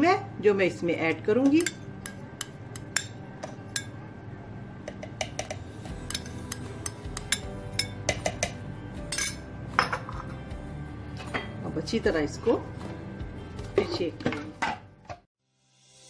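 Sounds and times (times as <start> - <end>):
spoon clinking against glass: 5.3 - 10.2.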